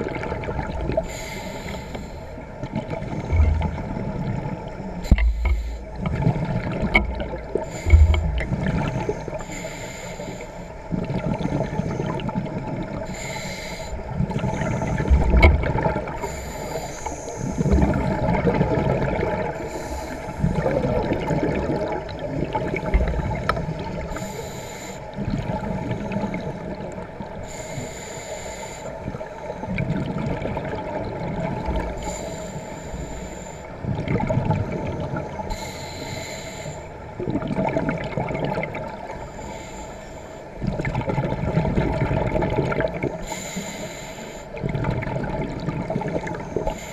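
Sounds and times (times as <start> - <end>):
underwater rumble and gurgle: 0.0 - 46.9
regulator bubbling exhalations: 2.8 - 9.6.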